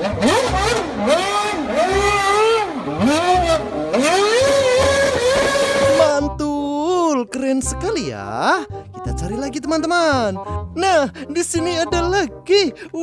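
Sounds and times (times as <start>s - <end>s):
race car engine revving hard: 0.0s - 6.1s.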